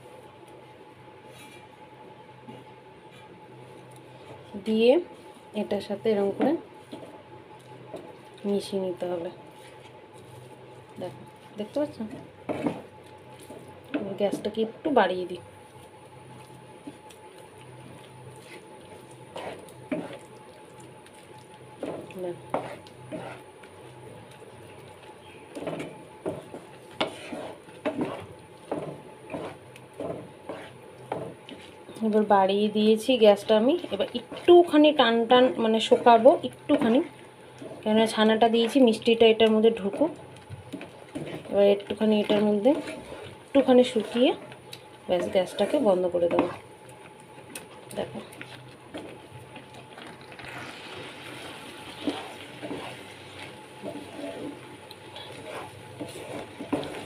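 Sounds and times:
spatula scraping a frying pan: 12.5 - 13.6, 18.3 - 20.3, 21.8 - 23.5, 25.5 - 31.9, 33.7 - 37.9, 39.9 - 46.7, 48.4 - 57.0.

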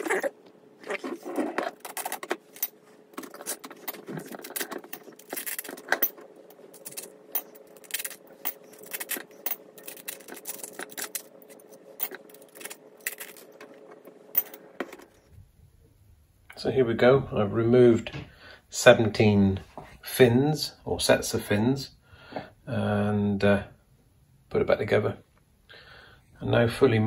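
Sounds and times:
faint steady hum: 0.0 - 27.0
metal capacitor plates clinking: 1.8 - 13.8.

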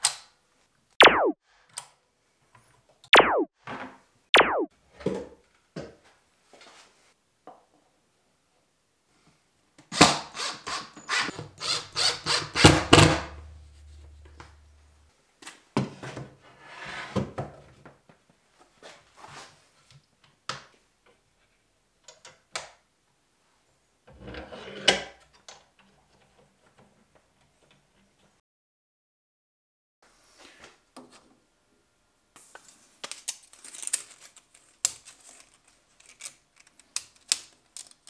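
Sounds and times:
cordless drill driving screw: 10.0 - 13.0.

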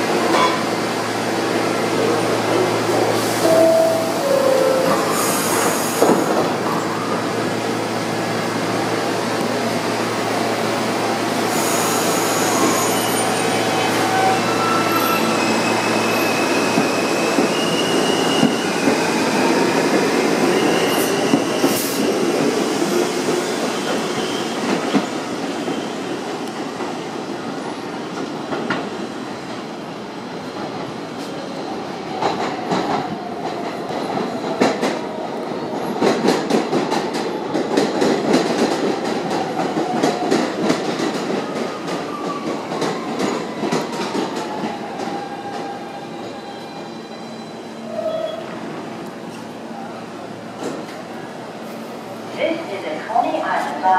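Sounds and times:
subway trains rumbling: 0.0 - 53.9
high wheel squeals: 11.6 - 19.4.

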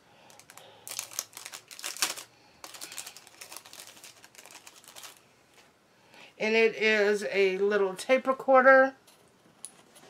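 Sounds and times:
packaging rustling and clicking: 0.3 - 5.2.

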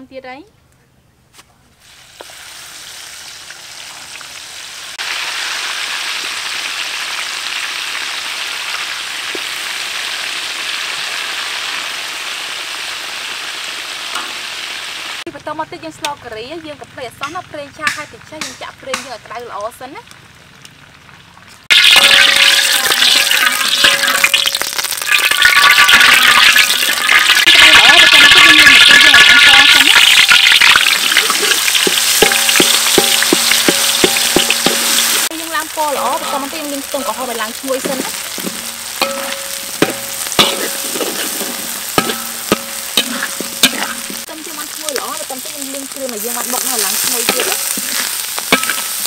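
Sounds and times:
hot oil sizzling in a wok: 1.8 - 49.0
spatula scraping a wok: 30.1 - 35.3, 35.9 - 44.3, 46.2 - 49.0.

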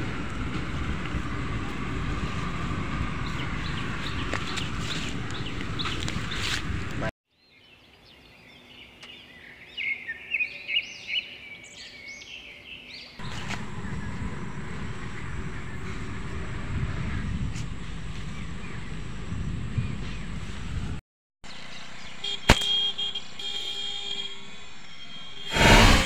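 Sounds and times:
outdoor background noise: 0.0 - 26.0.

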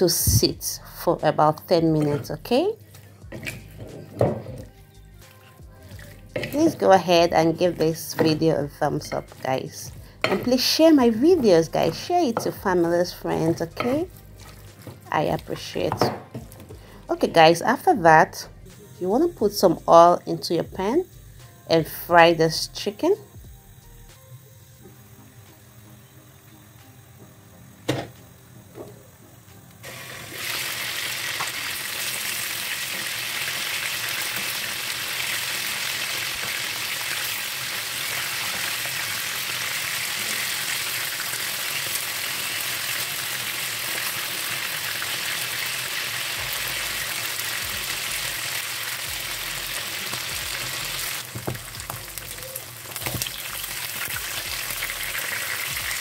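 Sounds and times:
wings sizzling in hot oil: 0.0 - 56.0.

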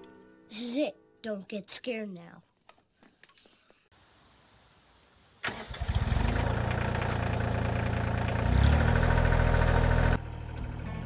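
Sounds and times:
tractor diesel engine idling: 5.5 - 11.0.

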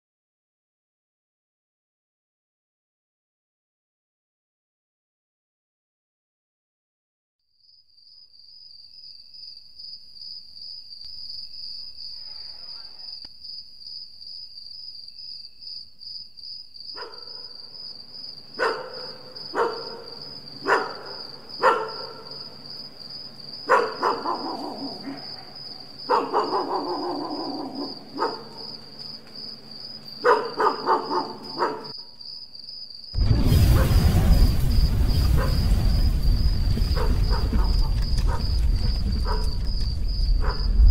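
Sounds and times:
cricket trilling: 7.6 - 40.9
dog barking: 16.9 - 17.8, 18.5 - 22.5, 23.6 - 28.8, 30.2 - 32.1, 35.3 - 35.6, 36.8 - 39.7, 40.4 - 40.8
dog howling: 23.7 - 28.6, 30.3 - 31.9.

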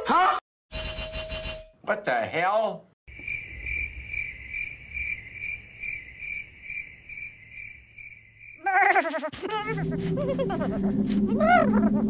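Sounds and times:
cricket chirping: 3.1 - 10.7.

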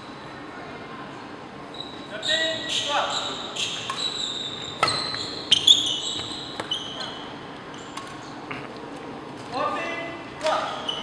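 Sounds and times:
shoes squeaking on court floor: 1.7 - 8.4, 10.4 - 11.0.

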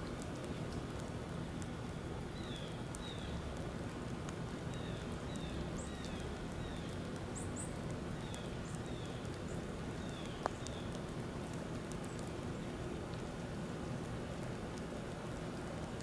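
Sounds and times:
steady outdoor hiss: 0.0 - 16.0
small birds chirping: 2.3 - 3.6, 4.5 - 11.1, 11.8 - 13.0.

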